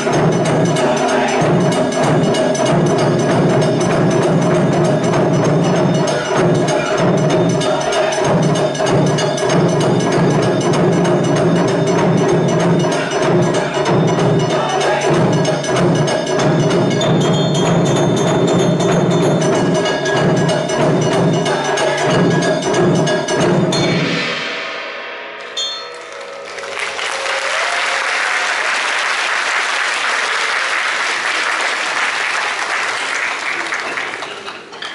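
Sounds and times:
drum ensemble playing fast rhythms: 0.0 - 34.9
audience applauding: 25.9 - 34.9.

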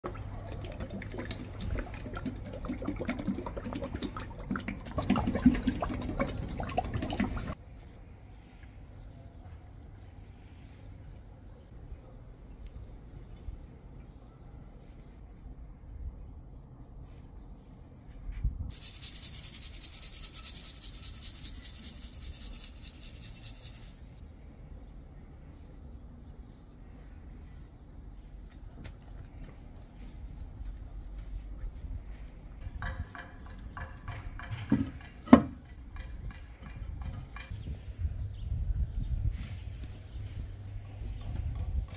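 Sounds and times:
oil glugging from metal tin: 0.0 - 7.6
salt shaken onto meat: 18.7 - 24.2.

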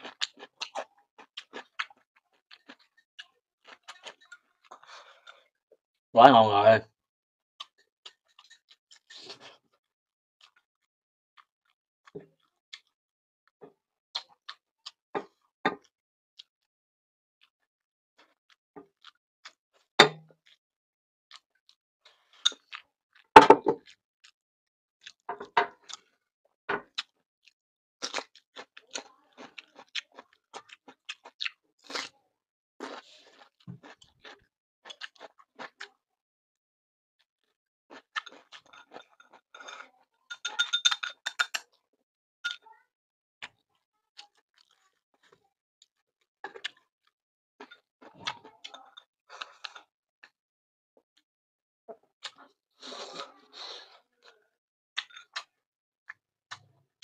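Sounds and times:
chewing and crunching: 0.0 - 5.6, 7.6 - 9.8, 10.4 - 10.7, 11.4 - 13.0, 13.6 - 16.6, 18.2 - 20.6, 21.3 - 24.4, 25.0 - 36.0, 37.4 - 41.9, 43.4 - 50.4, 51.9 - 56.8.

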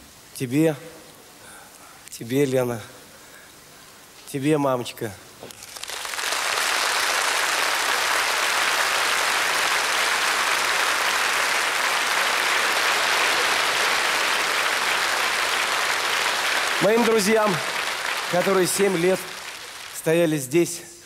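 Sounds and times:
audience applauding: 5.5 - 20.3.

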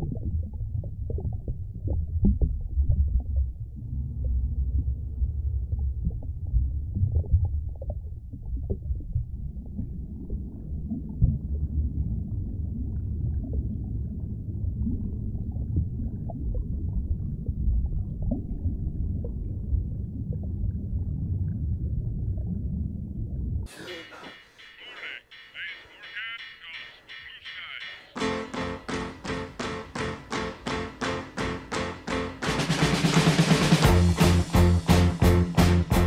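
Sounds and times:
deep muffled rumbling drone: 0.0 - 23.6.

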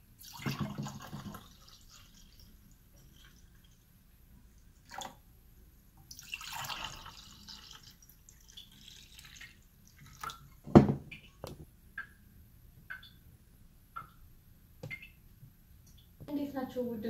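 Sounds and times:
liquid pouring into glass: 0.2 - 3.8, 6.1 - 10.9
glass pitcher set down: 0.3 - 1.5, 10.6 - 11.6.

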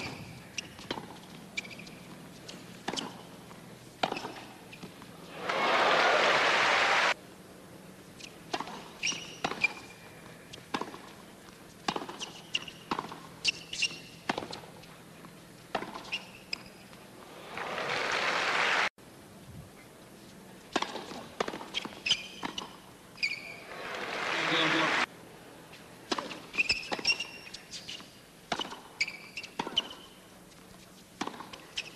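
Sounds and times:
sneaker squeaks: 0.0 - 3.3, 4.0 - 5.0, 8.2 - 10.9, 11.9 - 14.8, 15.8 - 17.0, 21.6 - 23.7, 26.2 - 30.2, 31.2 - 31.9
racket striking tennis ball: 2.6 - 3.3, 4.0 - 5.0, 8.5 - 11.2, 11.8 - 14.7, 15.7 - 16.7, 20.7 - 22.8, 26.1 - 27.4, 28.5 - 28.9, 31.2 - 31.6
crowd applause: 5.3 - 7.2, 17.3 - 18.9, 23.6 - 25.1.

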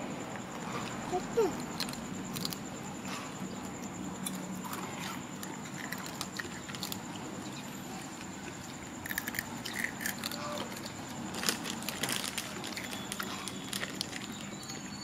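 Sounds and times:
monkey chewing a snack: 8.0 - 14.5.

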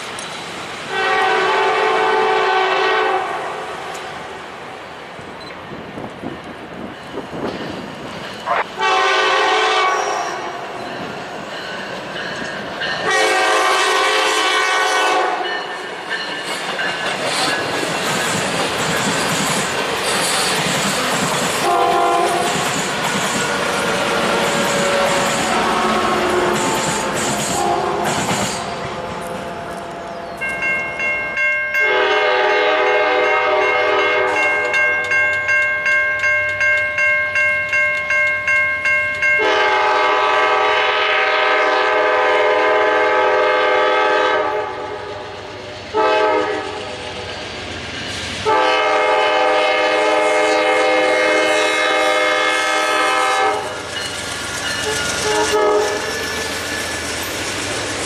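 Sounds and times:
rail and wheel noise: 0.0 - 58.0
train horn blasts: 0.9 - 3.7, 8.5 - 10.6, 13.0 - 15.7, 21.6 - 22.6, 23.6 - 30.3, 31.8 - 35.0, 39.4 - 45.2, 45.9 - 47.0, 48.4 - 53.8, 54.8 - 56.1
crossing warning bell: 10.5 - 13.6, 15.4 - 17.8, 28.6 - 40.8, 53.7 - 57.2.

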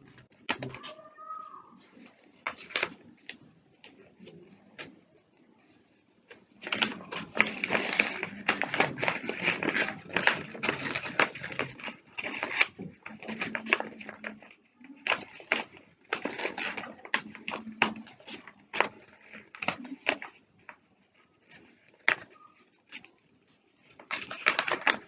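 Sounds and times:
paper being folded and creased: 0.0 - 25.0.

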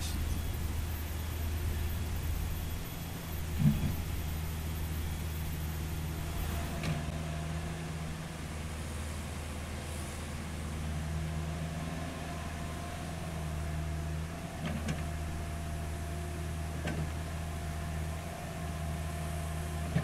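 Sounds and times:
excavator diesel engine running: 0.0 - 20.0
thin steady whine: 0.0 - 20.0.

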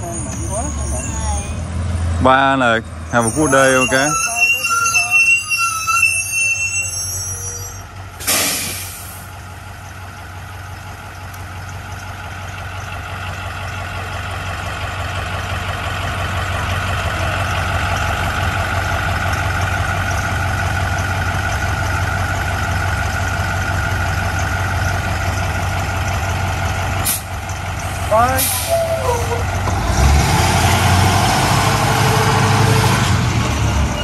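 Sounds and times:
diesel bus engine idling: 0.0 - 34.0
air brake hiss: 8.2 - 9.3, 27.0 - 27.3, 28.4 - 29.3.

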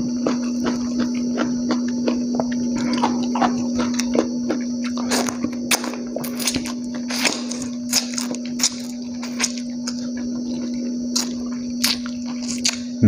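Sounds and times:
steady low hum: 0.0 - 13.0
wet chewing and lip-smacking: 0.0 - 13.0.

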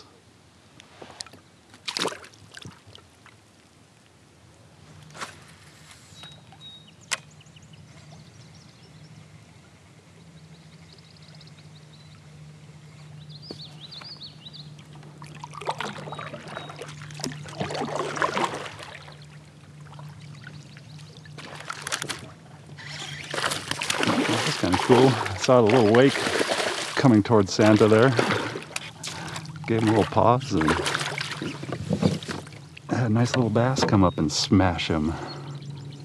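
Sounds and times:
water splashing and trickling: 1.2 - 4.1, 14.7 - 35.9
small birds chirping: 6.1 - 9.3, 10.1 - 15.1, 16.0 - 17.1, 32.6 - 36.0
fish striking with splash: 23.3 - 27.0, 28.1 - 29.2.

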